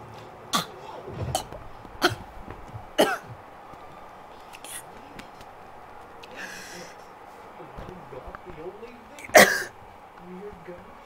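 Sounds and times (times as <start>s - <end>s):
woman coughing: 9.3s - 9.7s.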